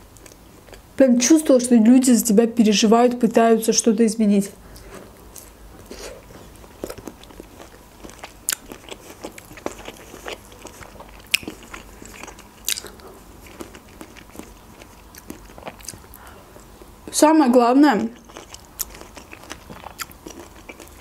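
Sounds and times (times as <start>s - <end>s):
chewing pineapple: 4.7s - 16.9s, 18.0s - 21.0s.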